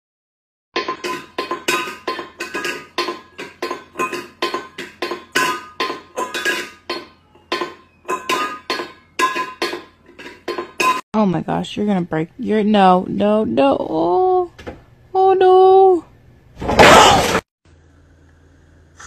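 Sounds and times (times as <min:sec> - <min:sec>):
metal bowl clanking on tiles: 0:00.8 - 0:11.0.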